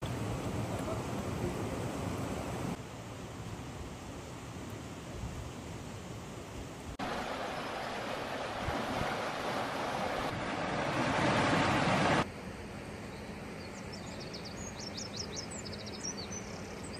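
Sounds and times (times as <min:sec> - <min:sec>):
flooded river rushing: 0:07.0 - 0:12.3
small birds chirping: 0:13.0 - 0:16.9.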